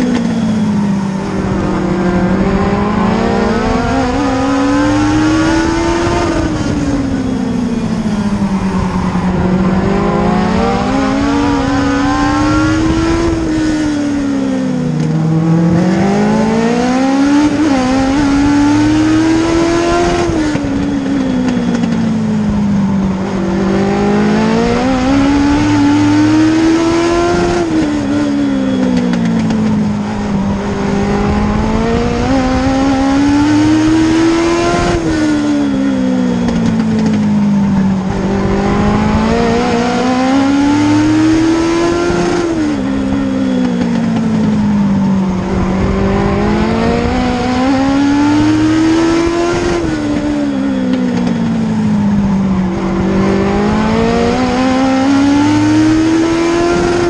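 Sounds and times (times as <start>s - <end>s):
race car engine revving: 0.0s - 57.0s.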